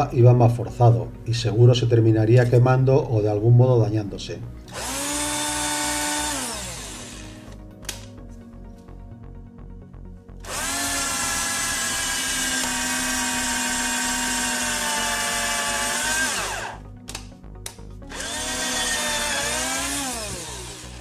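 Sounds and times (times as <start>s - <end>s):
cordless drill boring into wood: 4.7s - 7.6s, 10.4s - 16.8s, 18.0s - 21.0s.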